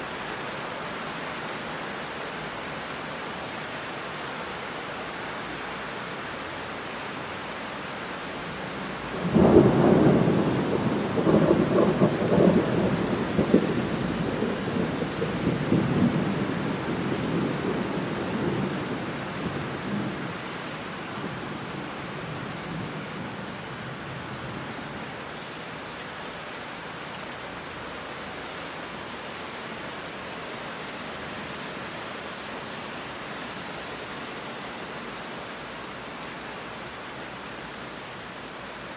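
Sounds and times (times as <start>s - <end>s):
heavy rain: 0.0s - 38.9s
thunder: 9.2s - 18.9s.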